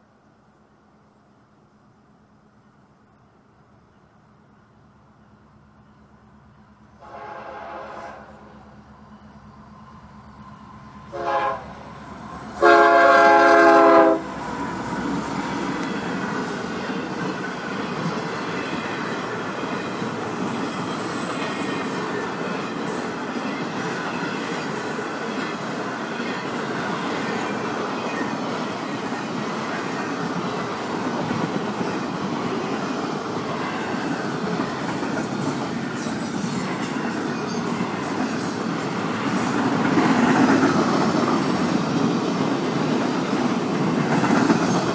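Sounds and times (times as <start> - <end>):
locomotive horn blast: 7.0 - 8.5, 11.1 - 11.9, 12.6 - 14.4
container cars rumbling past: 10.8 - 22.5
high wheel squeal: 14.6 - 28.4.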